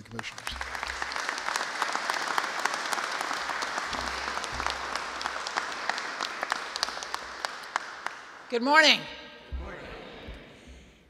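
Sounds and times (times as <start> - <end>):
audience applauding: 0.0 - 8.5.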